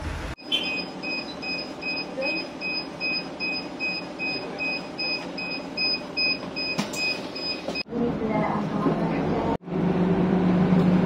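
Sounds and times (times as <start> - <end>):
bus beeper repeating beep: 0.4 - 7.8.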